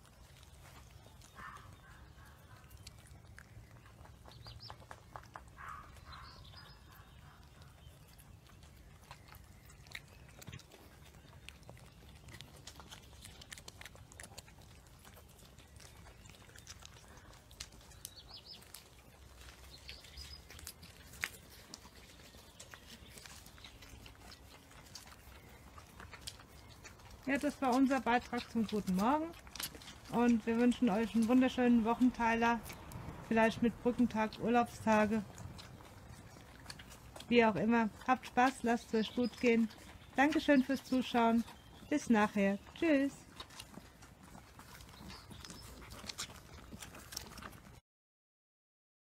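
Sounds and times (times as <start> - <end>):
puppies scuffling and chewing: 0.0 - 47.8.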